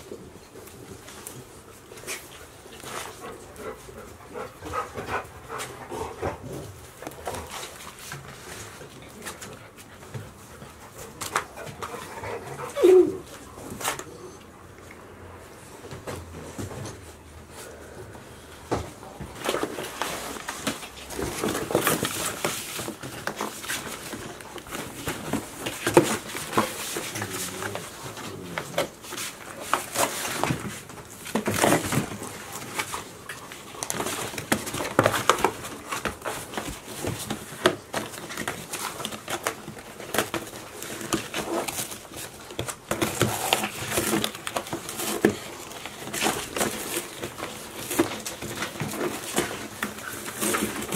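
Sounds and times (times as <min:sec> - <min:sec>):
cardboard crackling and tearing: 0:19.4 - 0:50.9.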